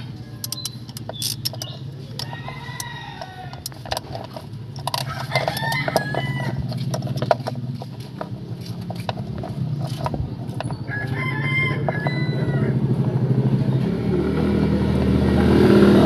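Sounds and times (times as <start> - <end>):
ratchet clicking: 0.0 - 10.8.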